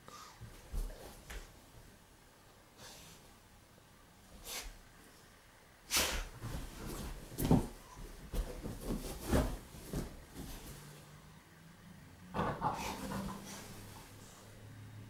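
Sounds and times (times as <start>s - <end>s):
dog scrabbling in cushions: 5.9s - 11.0s.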